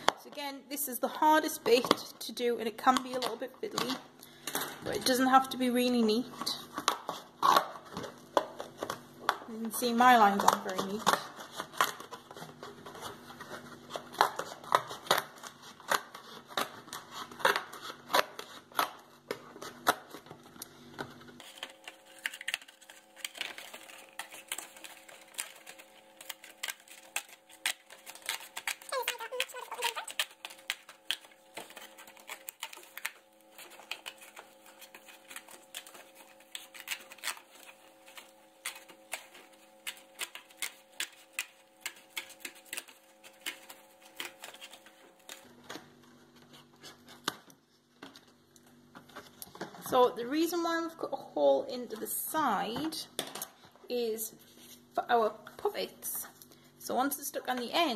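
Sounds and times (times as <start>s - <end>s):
scissors snipping cardboard: 13.9s - 20.2s, 21.4s - 45.5s.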